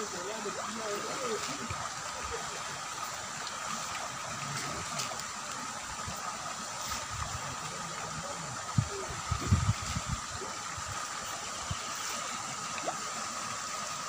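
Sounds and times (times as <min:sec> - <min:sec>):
fish splashing in pond water: 0:08.9 - 0:14.0.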